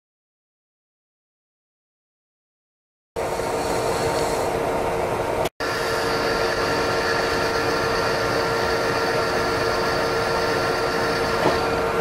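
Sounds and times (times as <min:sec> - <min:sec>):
lathe drilling steel shaft: 0:05.6 - 0:12.0.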